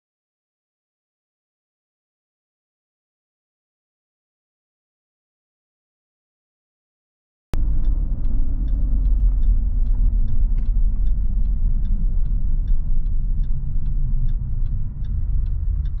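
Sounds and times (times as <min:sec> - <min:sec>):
faint light ticks: 0:07.6 - 0:16.0
vehicle driving rumble: 0:07.6 - 0:16.0.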